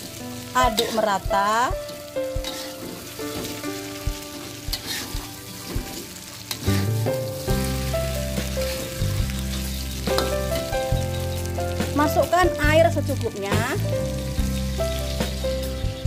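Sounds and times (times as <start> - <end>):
chicken sizzling in hot oil: 0.0 - 16.0
music with held notes: 0.0 - 16.0
metal spatula scraping wok: 0.7 - 12.3.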